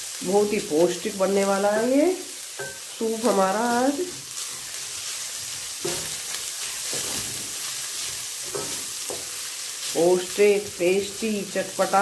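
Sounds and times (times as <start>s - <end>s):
vegetables sizzling in oil: 0.0s - 12.0s
wooden spatula scraping and knocking pan: 5.4s - 9.4s.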